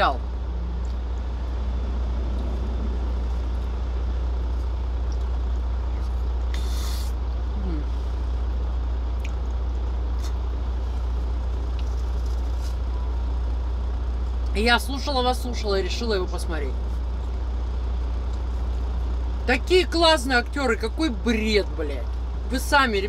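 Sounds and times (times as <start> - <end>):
truck engine idling: 0.0 - 23.0
soft chewing: 0.6 - 1.6, 2.3 - 7.0, 9.1 - 13.4, 16.8 - 19.2
short hiss: 6.5 - 7.2.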